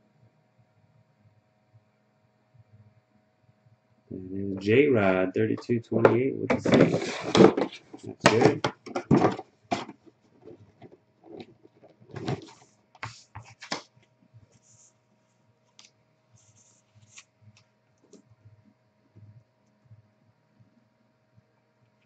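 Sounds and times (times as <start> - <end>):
cardboard box rustling: 6.5 - 10.6, 11.3 - 12.6.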